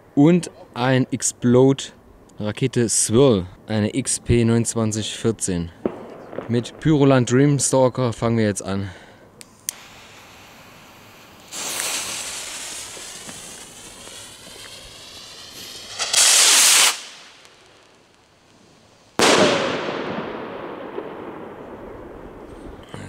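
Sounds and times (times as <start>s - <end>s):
firework bang with echo: 5.8s - 6.8s, 11.5s - 17.5s, 19.2s - 22.5s
blast of spraying sparks: 9.4s - 19.8s
firework rocket launching: 9.4s - 22.8s.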